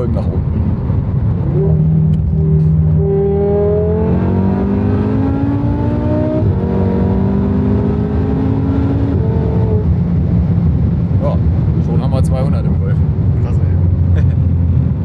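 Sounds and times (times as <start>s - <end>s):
car engine accelerating: 0.6s - 11.9s.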